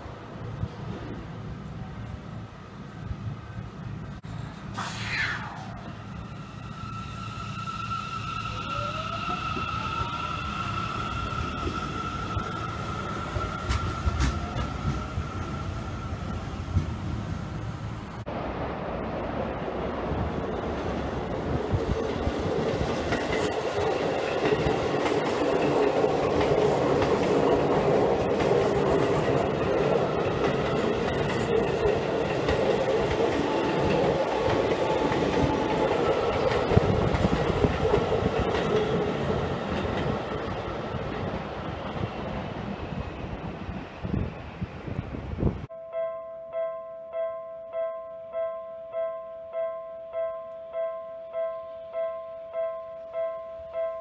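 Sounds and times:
train wheels rumbling on rails: 0.0s - 45.7s.

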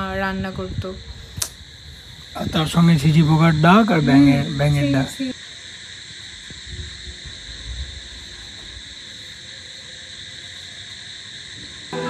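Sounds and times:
wind buffeting microphone: 0.0s - 5.0s, 6.5s - 8.9s
crickets trilling: 0.0s - 12.0s.

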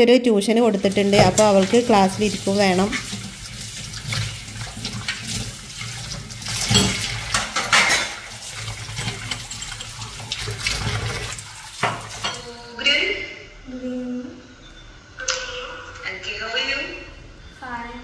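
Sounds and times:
tap water running into sink: 0.7s - 12.6s
water splashing: 0.7s - 12.6s.

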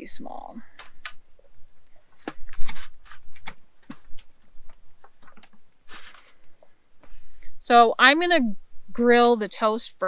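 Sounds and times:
scratchy rustles: 1.9s - 6.7s.

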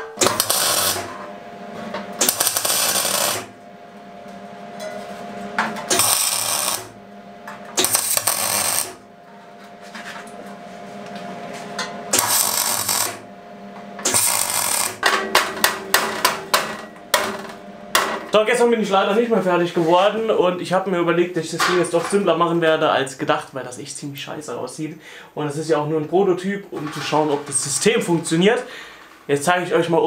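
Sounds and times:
welder crackling and sizzling: 0.0s - 1.3s, 2.0s - 3.6s, 5.8s - 7.0s, 7.6s - 9.0s, 12.1s - 13.3s, 14.0s - 18.6s.

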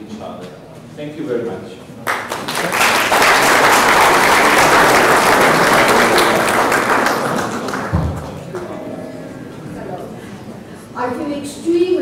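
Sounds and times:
audience applauding: 2.0s - 8.8s.

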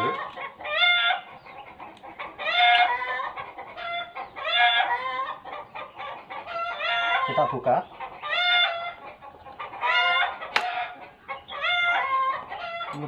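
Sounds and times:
chickens calling: 0.0s - 13.0s.

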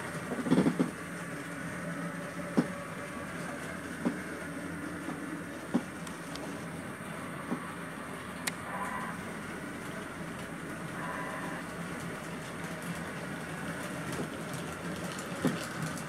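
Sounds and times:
model train running hum: 0.0s - 16.0s.

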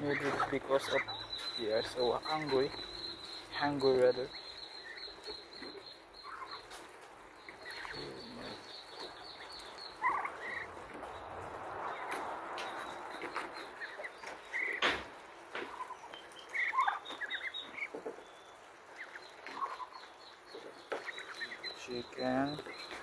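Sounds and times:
birds calling: 0.0s - 23.0s.

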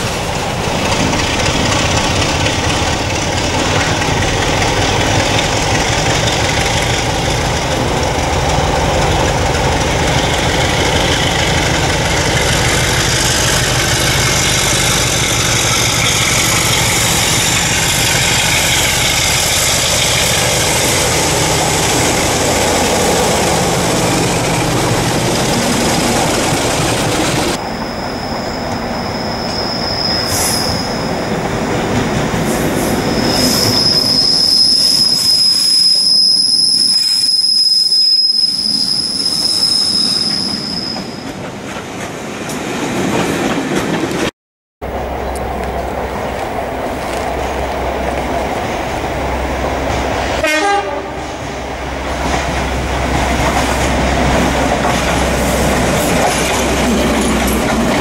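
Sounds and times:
diesel locomotives running past: 0.0s - 58.0s
train wheels on rails: 0.0s - 58.0s
wheel flange squeal: 27.8s - 31.2s, 32.6s - 41.2s.

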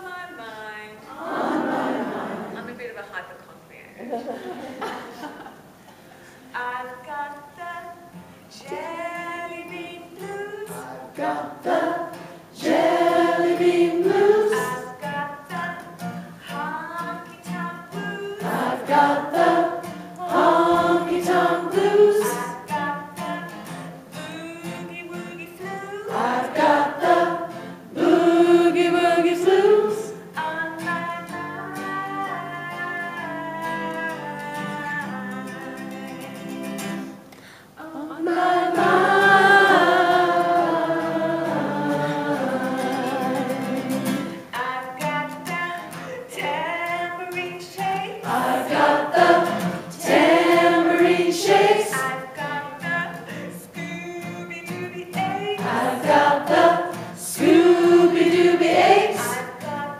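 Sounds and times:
acoustic guitar: 0.0s - 59.9s
voices singing a blues song: 1.1s - 2.5s, 6.6s - 36.6s, 37.7s - 59.9s.

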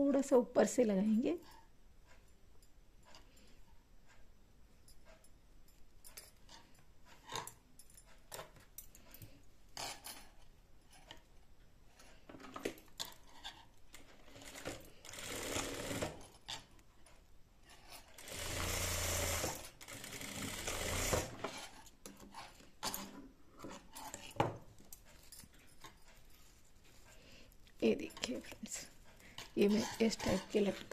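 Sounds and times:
sewing machine stitching: 14.2s - 16.3s, 18.0s - 21.8s.

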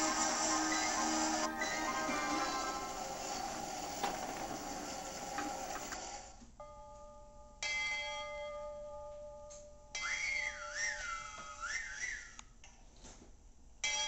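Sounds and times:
music: 0.0s - 6.0s.

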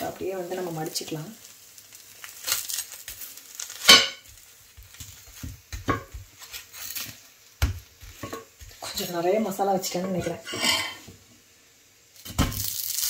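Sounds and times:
metal utensil scraping on griddle: 2.2s - 7.3s, 8.1s - 11.1s.

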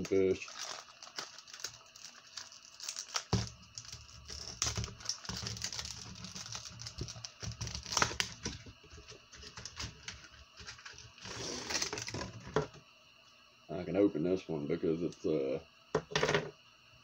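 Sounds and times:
crinkling rustle: 0.0s - 12.6s
package clicking and rustling: 0.0s - 12.7s.

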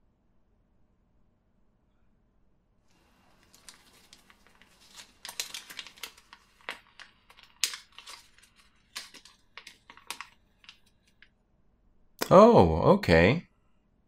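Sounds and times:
paper crackling and rustling: 2.9s - 11.3s.

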